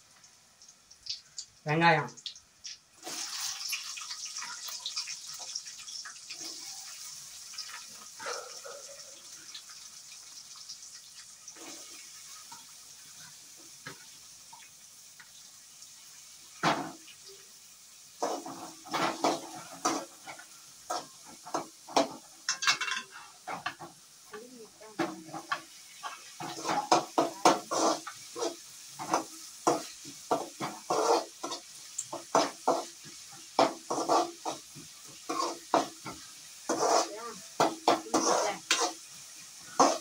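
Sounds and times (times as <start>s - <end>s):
onions sizzling in oil: 0.0s - 40.0s
metal spoon scraping a pan: 18.2s - 23.9s, 25.0s - 40.0s.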